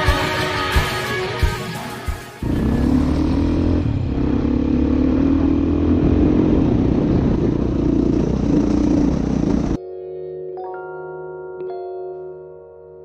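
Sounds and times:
motorcycle engine running: 2.4 - 9.8.

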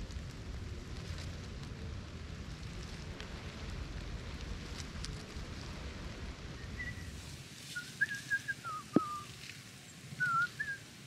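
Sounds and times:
wavering whistled notes: 6.6 - 7.1, 7.7 - 9.3, 10.2 - 10.8.

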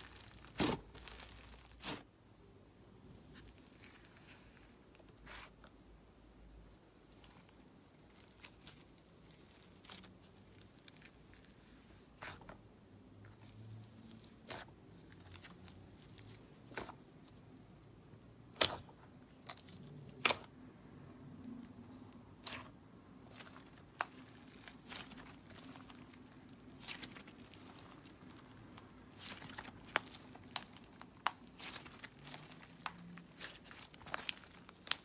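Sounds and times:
slime squished by fingers: 7.0 - 20.9, 21.5 - 35.0.

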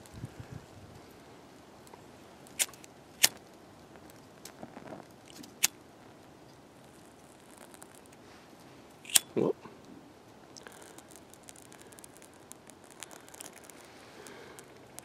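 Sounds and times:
lighter spark wheel clicks: 9.1 - 9.3.

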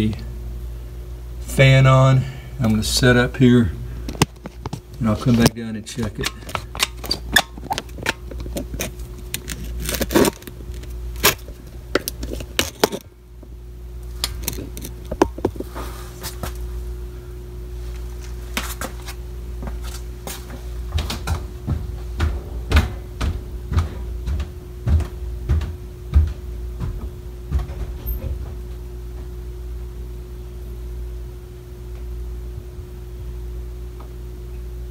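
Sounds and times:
furnace blower motor humming: 0.0 - 34.9.

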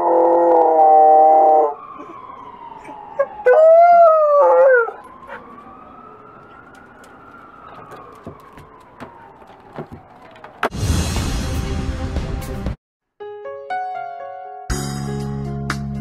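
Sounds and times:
dog howling: 0.0 - 1.8, 3.2 - 5.6
distant ambulance siren wailing: 0.0 - 10.8.

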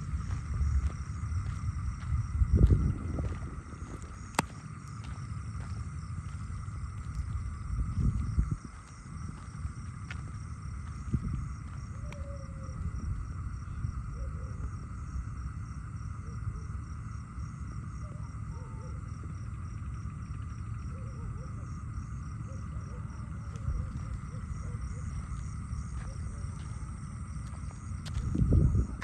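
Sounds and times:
low rumble: 0.0 - 16.0, 23.4 - 29.0
crickets chirping: 0.0 - 29.0
high pulsing insect trill: 0.0 - 29.0.

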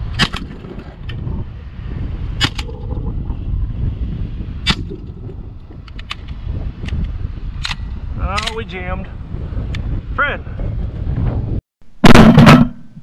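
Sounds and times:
wind rumbling on microphone: 0.0 - 13.0
shotgun shots: 12.0 - 12.9.

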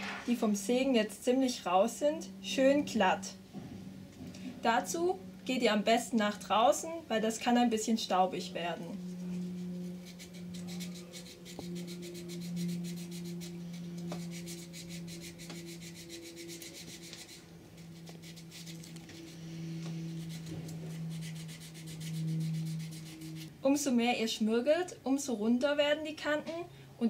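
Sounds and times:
sandpaper rubbing wood: 9.0 - 23.5.

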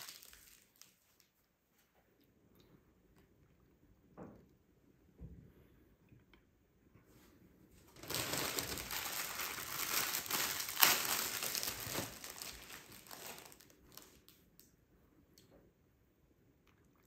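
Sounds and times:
wrapping crumpling: 0.0 - 1.4, 7.9 - 14.4.

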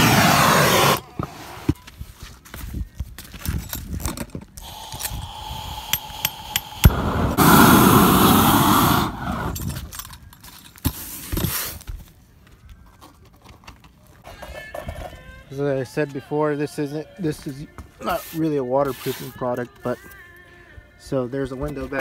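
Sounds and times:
propane torch flame rushing: 0.0 - 1.7, 4.6 - 9.9.

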